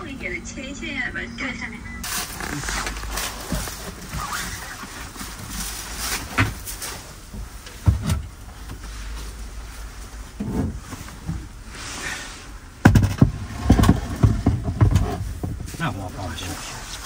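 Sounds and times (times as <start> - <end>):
scraping and handling noise: 2.0 - 17.0
knocks on metal seat frame: 12.8 - 15.7.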